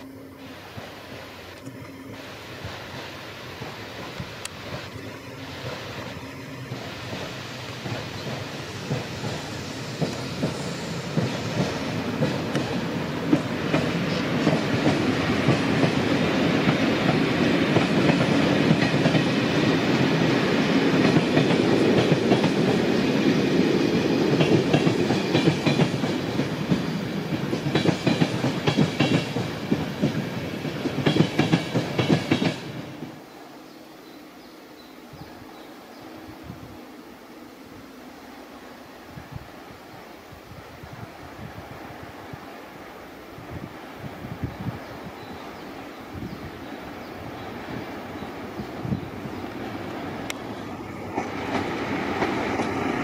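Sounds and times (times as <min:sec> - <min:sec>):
rhythmic clicking over rail joints: 0:00.0 - 0:34.2, 0:45.0 - 0:53.0
train wheels rumbling on rails: 0:00.0 - 0:34.2, 0:40.4 - 0:53.0.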